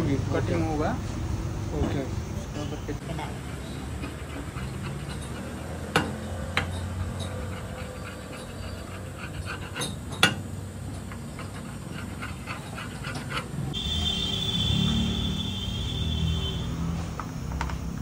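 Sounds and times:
metal spatula tapping and scraping griddle: 4.0s - 7.4s.

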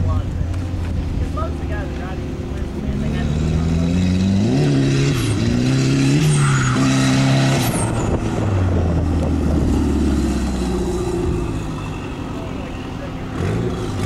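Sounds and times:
car engine revving: 0.1s - 14.0s
tyre screeches: 6.2s - 8.3s.

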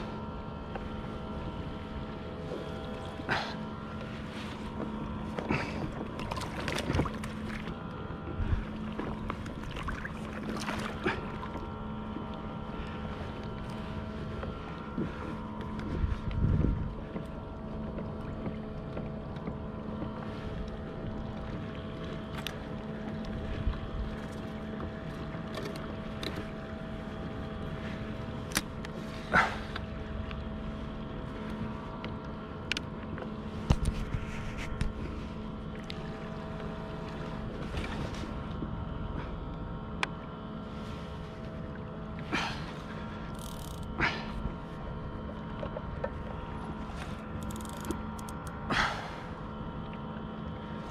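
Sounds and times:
boat hum: 0.0s - 50.9s
knocks and clicks from kayak: 14.4s - 20.2s, 21.4s - 26.5s, 32.0s - 35.1s, 45.2s - 46.8s.

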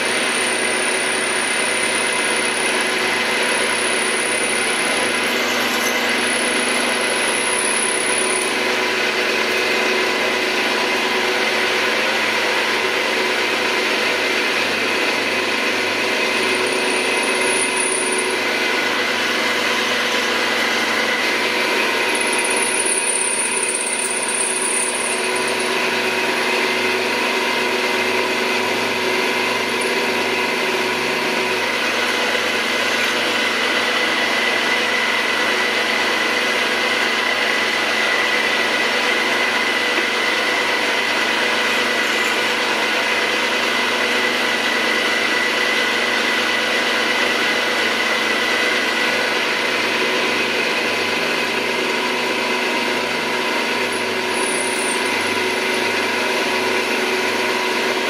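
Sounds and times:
high-pitched drill squeal: 0.0s - 8.6s, 16.3s - 18.4s, 22.0s - 25.8s, 53.8s - 55.6s
drilling machine running: 0.0s - 58.0s.

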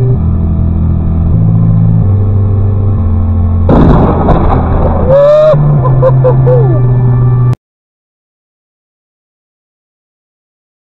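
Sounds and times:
thunderclap: 3.7s - 5.7s
rising and falling wail: 4.6s - 7.1s.

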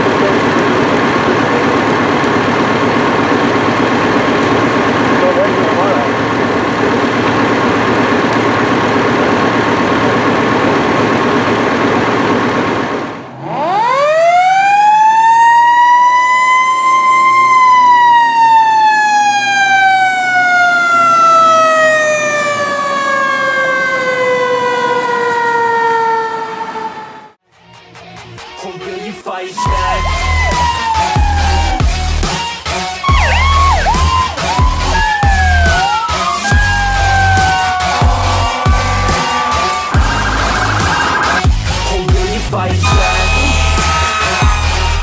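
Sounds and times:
engine and pump droning: 0.0s - 27.4s, 29.6s - 45.0s
mechanical siren wailing: 13.3s - 27.4s, 29.6s - 41.9s, 42.8s - 45.0s.

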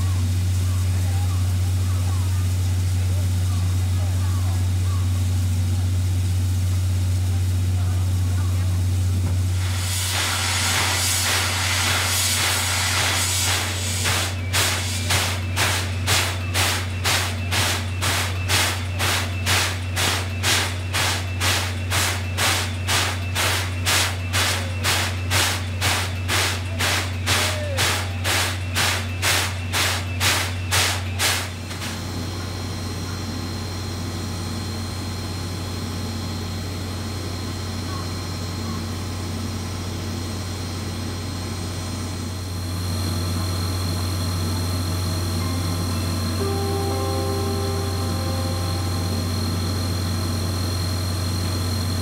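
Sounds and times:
steam locomotive hissing steam: 0.0s - 33.6s
steady low hum: 0.0s - 52.0s
steam locomotive chuffing: 0.0s - 52.0s.

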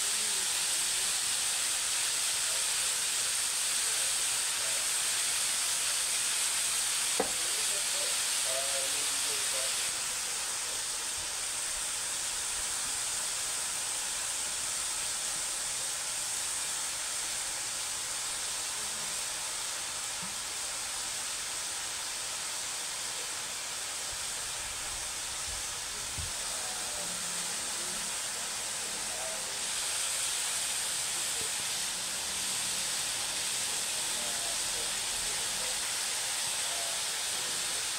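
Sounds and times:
food sizzling in a wok: 0.0s - 37.9s.

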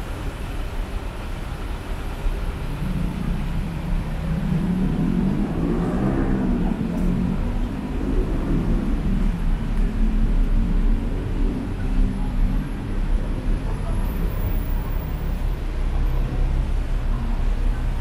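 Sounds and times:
rumble of road traffic: 0.0s - 18.0s
vehicle engine passing: 3.0s - 13.0s.

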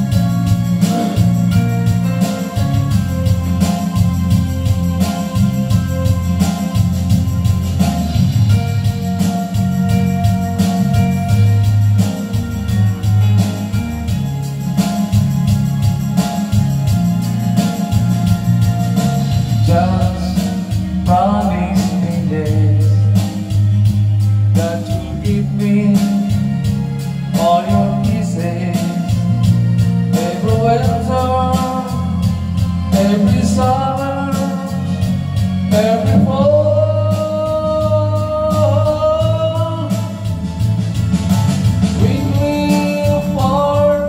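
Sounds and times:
man singing into a microphone: 0.0s - 6.7s, 19.0s - 23.6s, 24.5s - 40.4s, 41.9s - 44.0s
backing music: 0.0s - 44.0s.

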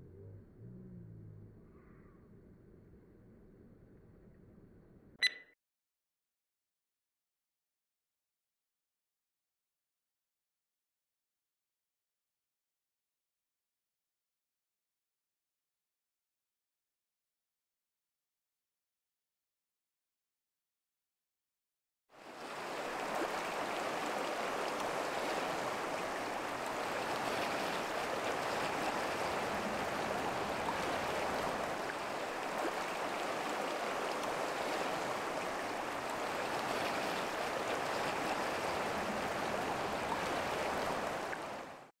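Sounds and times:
stream water flowing: 22.2s - 41.9s.

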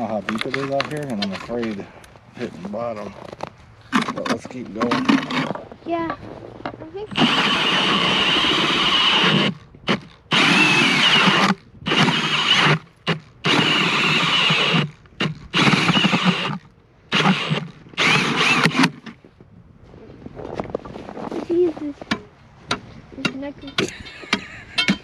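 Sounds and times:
cordless drill whining into ice: 7.1s - 19.2s.

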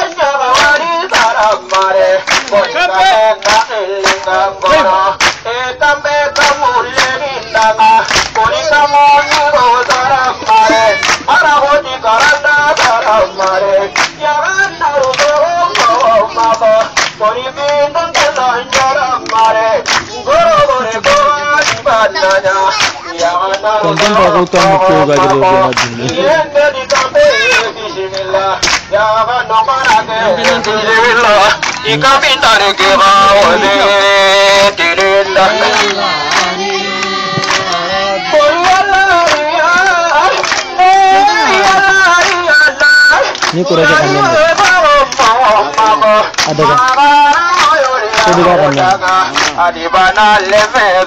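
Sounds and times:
sharp knocks or claps: 0.0s - 2.7s, 3.4s - 5.5s, 6.4s - 8.6s, 12.2s - 14.2s, 15.0s - 17.2s, 18.1s - 23.0s, 23.9s - 26.2s, 26.9s - 27.6s, 28.6s - 28.9s, 37.4s - 38.0s
man singing through a megaphone: 0.0s - 51.0s.

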